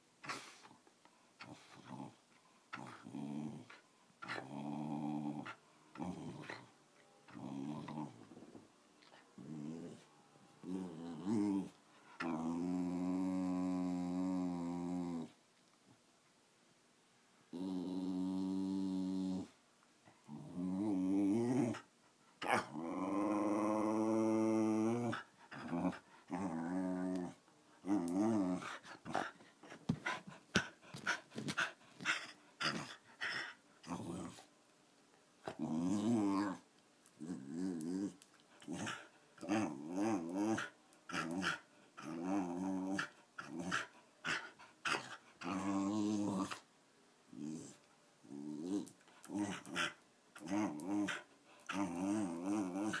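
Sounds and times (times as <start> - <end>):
dog whining and grumbling: 9.4 - 15.4, 20.3 - 34.5, 35.4 - 36.6, 37.2 - 46.6, 47.3 - 53.0.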